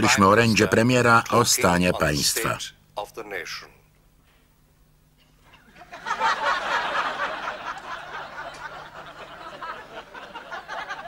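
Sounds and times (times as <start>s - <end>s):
audience laughing: 5.6s - 11.0s.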